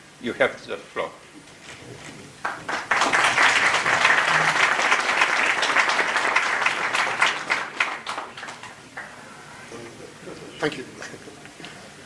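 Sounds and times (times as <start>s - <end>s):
audience applauding: 2.4s - 9.2s.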